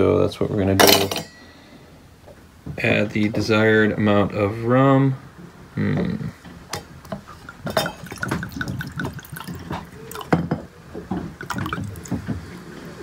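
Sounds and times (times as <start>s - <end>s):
liquid glugging from glass bottle: 7.2s - 10.6s, 11.4s - 12.2s
liquid splashing over ice: 7.4s - 10.3s, 11.4s - 12.2s.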